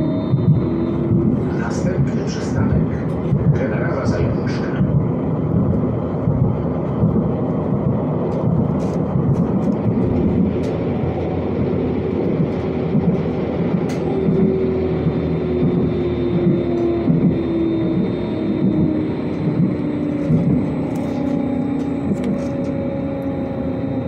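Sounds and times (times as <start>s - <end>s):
tram wheels rumbling on rails: 0.0s - 24.0s
whine sinking in pitch: 9.7s - 24.0s.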